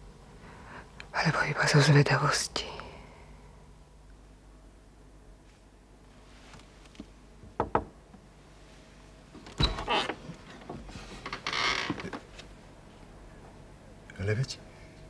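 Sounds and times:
knocks on wooden door: 7.4 - 8.0
door scraping open: 9.5 - 12.1.

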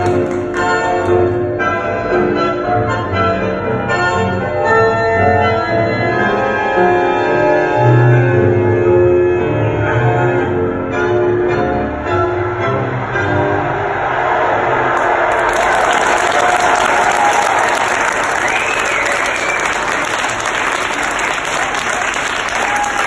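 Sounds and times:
tango music: 0.0 - 14.0.

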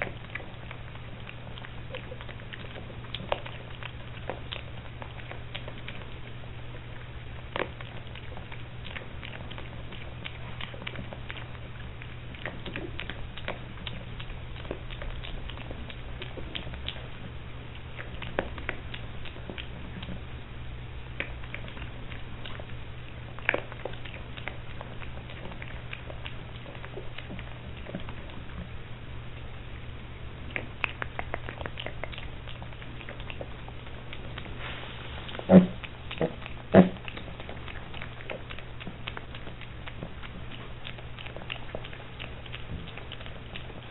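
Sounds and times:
piglet crunching feed pellets: 0.0 - 43.9
steady low hum: 0.0 - 43.9
piglet grunts: 34.6 - 37.2.

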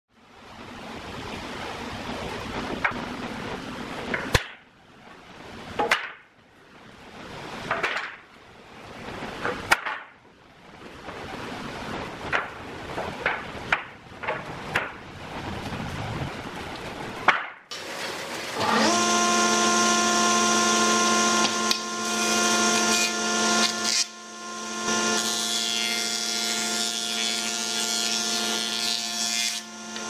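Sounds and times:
wooden boards knocking: 9.4 - 10.2, 17.3 - 17.6.

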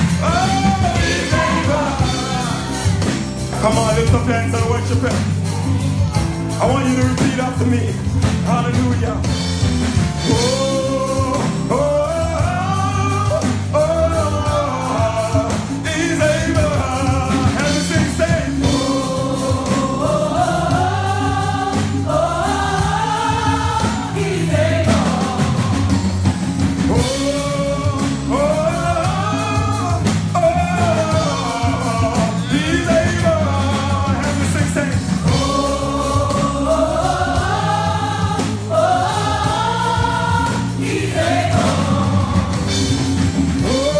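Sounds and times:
man singing lead: 0.0 - 9.4, 10.2 - 20.9, 22.2 - 36.9, 43.6 - 43.9
choir singing gospel: 0.0 - 43.9
instrumental backing: 0.0 - 43.9.

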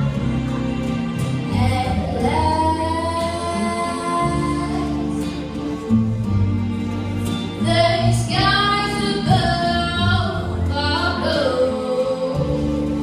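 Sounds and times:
instrumental backing music: 0.0 - 13.0
girl singing into microphone: 1.6 - 5.2, 7.6 - 13.0.

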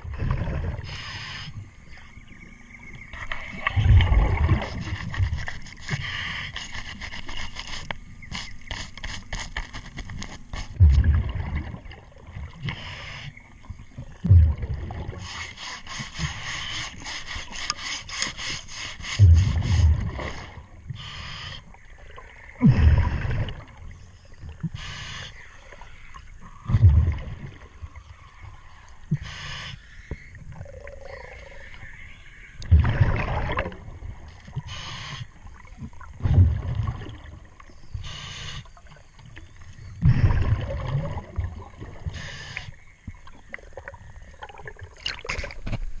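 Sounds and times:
exhaled bubbles rushing: 0.0 - 1.0, 3.1 - 5.5, 10.8 - 12.7, 13.9 - 15.4, 21.9 - 24.6, 26.6 - 28.6, 32.6 - 34.3, 35.5 - 37.6, 39.8 - 42.2, 43.2 - 45.7
regulator hissing inhale: 0.8 - 2.0, 4.7 - 9.5, 12.6 - 13.4, 15.1 - 21.8, 24.6 - 25.7, 29.1 - 30.1, 34.6 - 35.4, 37.9 - 38.8, 42.0 - 42.9.

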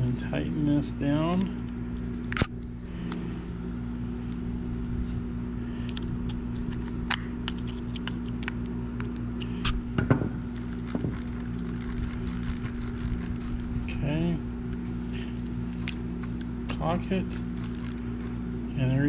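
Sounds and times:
steady low hum: 0.0 - 19.0
metal reel parts clicking: 10.6 - 13.8, 16.8 - 18.4.

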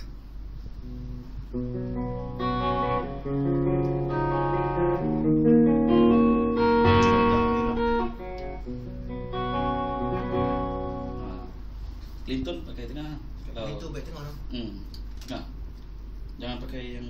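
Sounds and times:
clean electric guitar: 0.0 - 11.9
steady low hum: 0.0 - 17.0.

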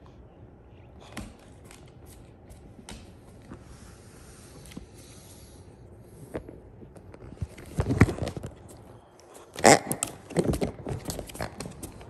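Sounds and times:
squeeze toy grunting: 9.5 - 10.2.

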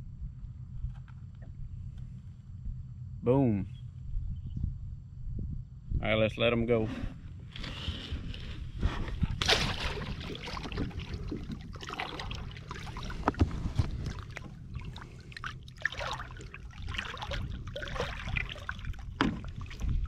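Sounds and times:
wind rumble on microphone: 0.0 - 20.0
water splashing against kayak: 8.3 - 20.0.

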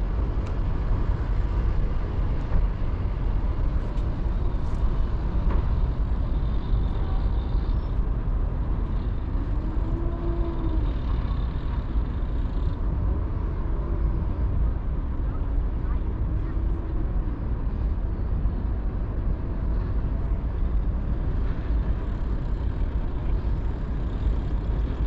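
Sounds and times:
distant engine hum: 0.0 - 25.0
wind rumble on microphone: 0.0 - 25.0.

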